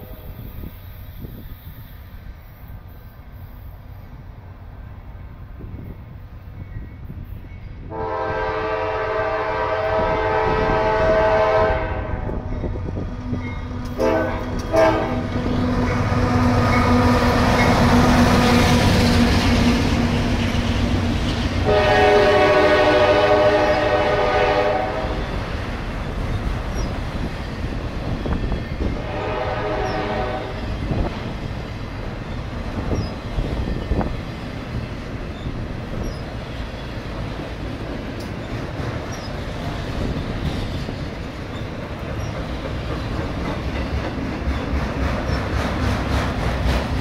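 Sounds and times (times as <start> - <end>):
train wheels rumbling on rails: 0.0 - 47.0
train cars clanking: 5.5 - 47.0
train air horn: 7.9 - 12.5, 13.9 - 18.8, 21.6 - 25.3, 29.0 - 30.6.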